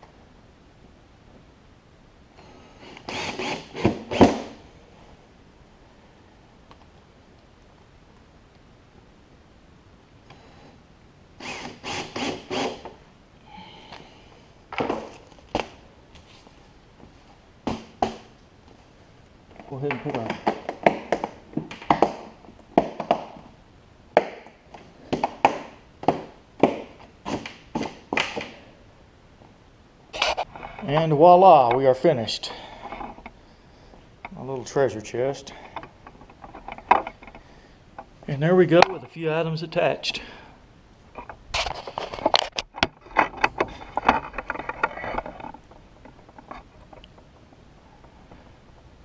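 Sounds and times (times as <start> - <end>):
handling clicks knocks and scrapes: 30.2 - 31.1, 35.5 - 38.1, 41.2 - 48.2.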